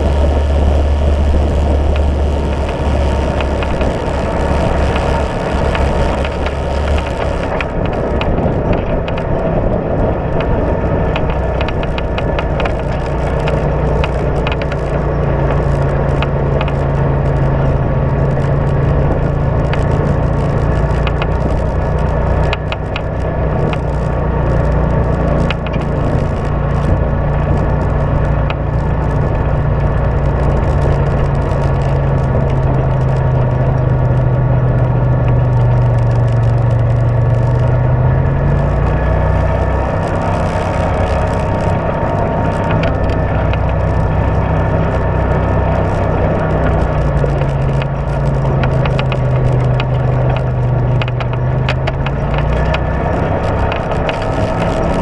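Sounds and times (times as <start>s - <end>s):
small clicks and rattles: 0.0s - 55.0s
utility vehicle engine running: 0.0s - 55.0s.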